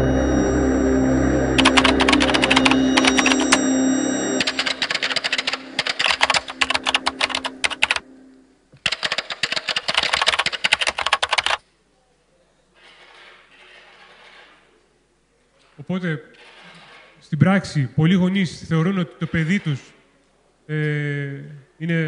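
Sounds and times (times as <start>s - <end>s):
keyboard typing clicks: 1.6s - 3.7s, 4.4s - 8.0s, 8.8s - 11.6s.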